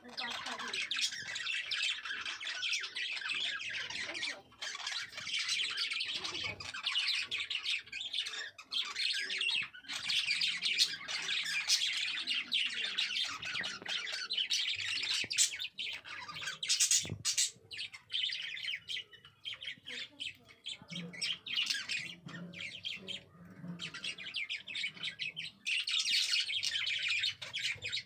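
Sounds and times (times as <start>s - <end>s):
budgerigars chattering: 0.0s - 28.0s.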